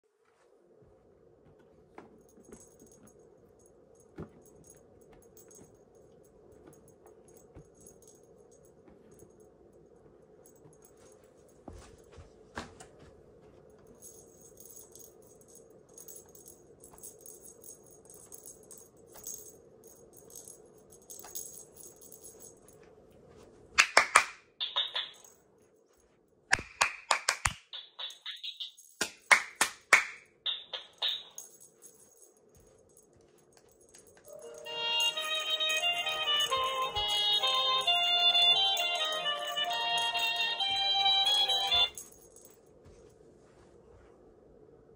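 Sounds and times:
faint hum: 0.0s - 23.8s, 30.3s - 44.9s
toy playing tinny song: 34.3s - 42.0s.

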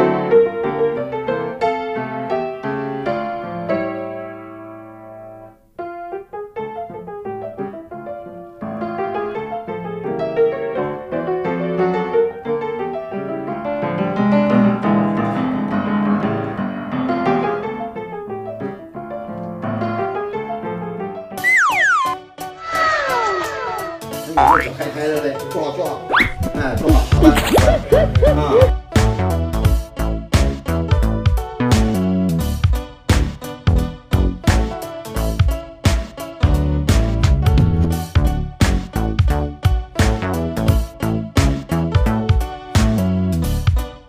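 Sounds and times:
sound effect falling in pitch: 21.4s - 22.2s, 24.4s - 24.8s
piano music: 21.4s - 22.4s, 24.4s - 25.0s.

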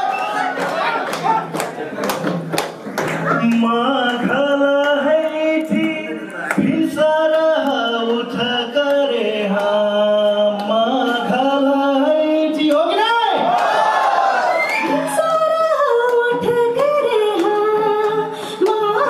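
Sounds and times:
man singing into a microphone: 3.3s - 13.2s.

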